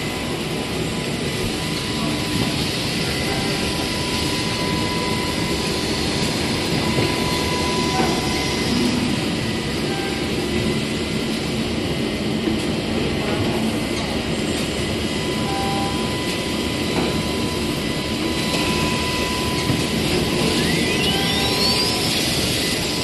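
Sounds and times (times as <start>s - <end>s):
industrial machinery running: 0.0s - 23.0s.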